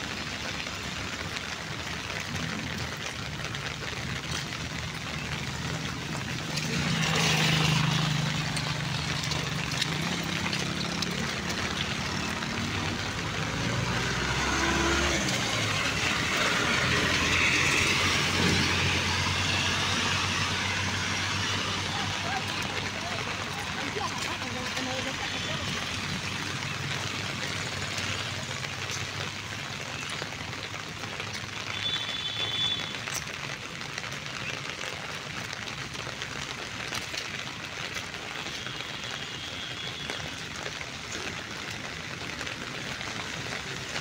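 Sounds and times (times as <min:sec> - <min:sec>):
cars passing: 0:00.0 - 0:32.0
vehicle engines running: 0:00.0 - 0:44.0.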